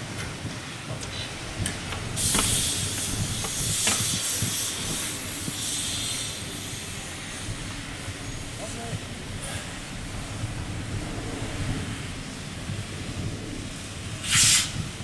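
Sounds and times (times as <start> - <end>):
steam locomotive hissing steam: 2.1 - 10.0, 13.8 - 15.0.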